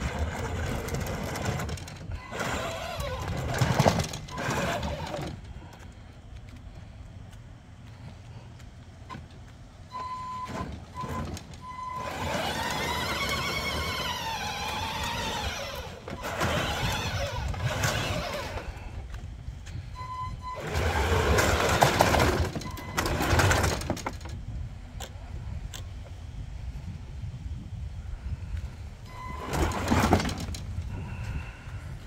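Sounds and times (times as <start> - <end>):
electric motors whining: 0.0 - 5.8, 9.9 - 24.1
short beeps: 9.9 - 12.1.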